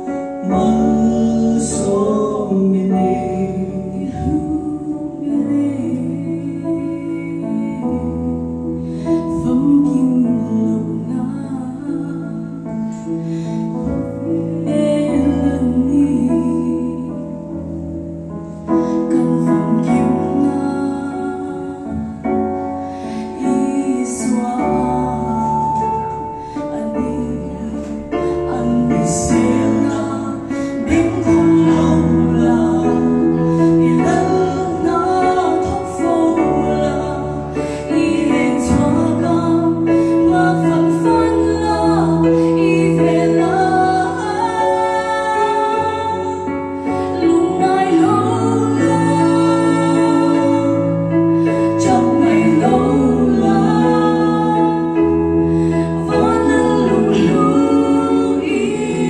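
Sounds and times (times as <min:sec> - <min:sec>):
keyboard accompaniment: 0:00.0 - 0:59.0
vocal trio singing gospel: 0:00.5 - 0:07.8, 0:23.0 - 0:59.0.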